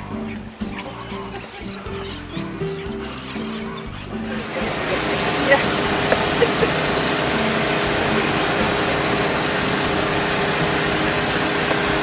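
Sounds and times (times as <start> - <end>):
outboard motor idling: 2.7 - 12.0.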